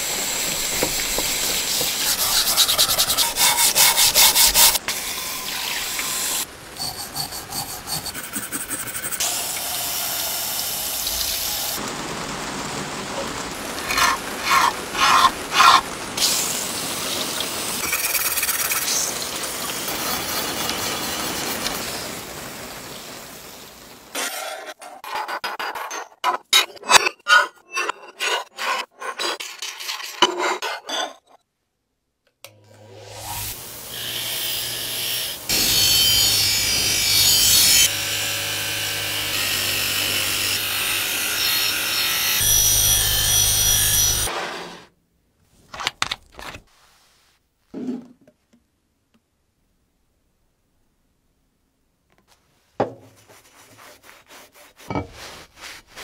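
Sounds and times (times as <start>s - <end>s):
wire wheel rasping on metal: 25.5s - 31.3s.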